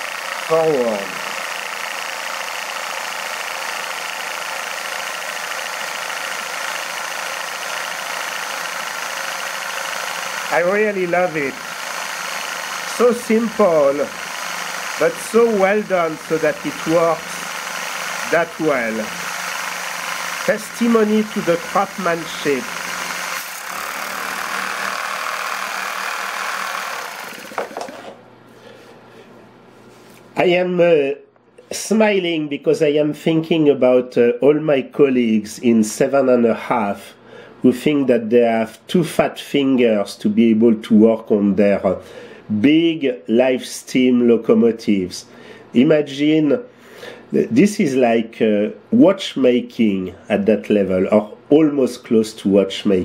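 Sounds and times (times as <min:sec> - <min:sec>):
model locomotive exhaust beat: 0:00.0 - 0:27.9.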